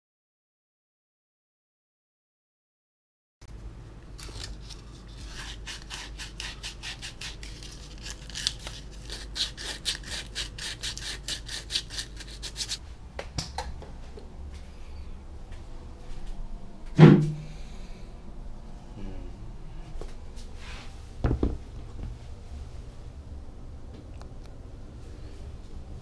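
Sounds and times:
hand tool rubbing strokes: 0:09.0 - 0:12.8.

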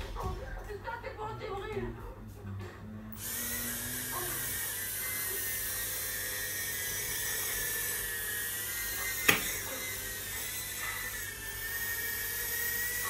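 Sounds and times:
quadcopter motors whining: 0:03.1 - 0:13.0.

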